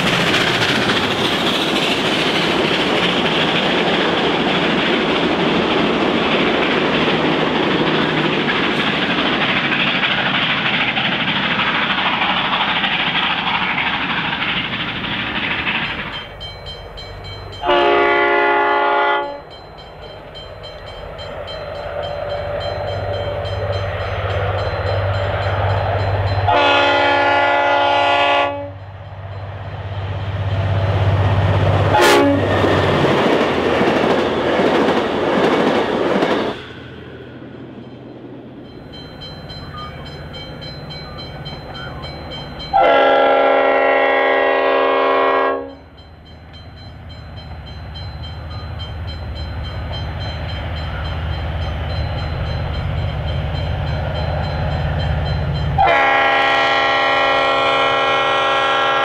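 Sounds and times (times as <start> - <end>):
train carriages rolling on rails: 0.0 - 59.0
locomotive horn blasts: 17.6 - 19.5, 26.5 - 28.8, 31.9 - 32.5, 42.7 - 45.8, 55.8 - 59.0
locomotive engine rumble: 18.6 - 44.1.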